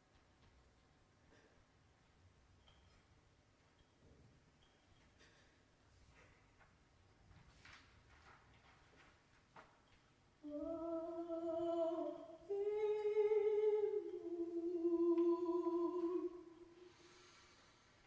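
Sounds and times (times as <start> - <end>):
woman humming a slow melody: 10.4 - 17.0.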